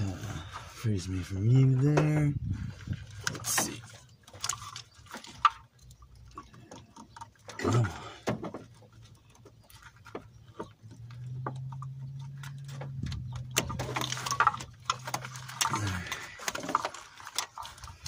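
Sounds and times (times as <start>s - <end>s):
clicks and knocks of parts: 8.2s - 18.0s.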